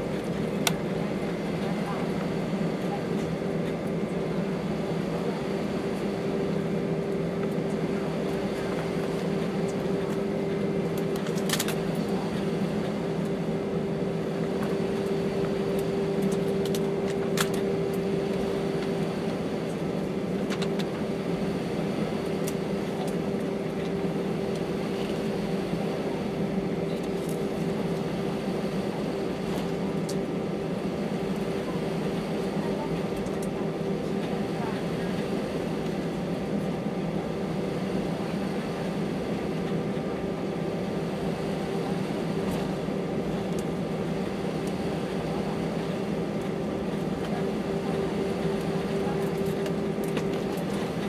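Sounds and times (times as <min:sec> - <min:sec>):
aircraft cabin engine hum: 0:00.0 - 0:51.0.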